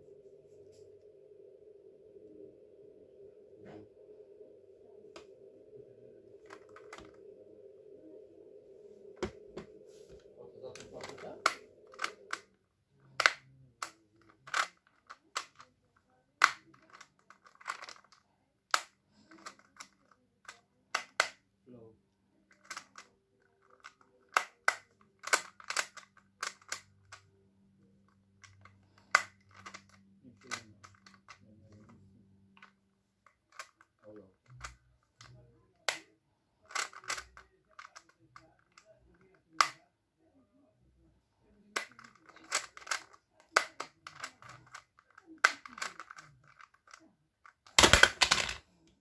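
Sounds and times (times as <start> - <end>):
plastic puzzle clicks: 10.8 - 15.7, 16.4 - 21.4, 22.5 - 27.3, 28.4 - 32.0, 32.6 - 39.8, 41.7 - 48.6.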